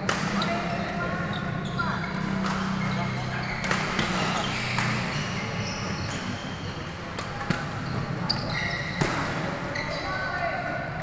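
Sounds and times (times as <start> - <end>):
rackets striking shuttlecock: 0.0 - 0.6, 3.6 - 5.0
busy sports hall background: 0.0 - 11.0.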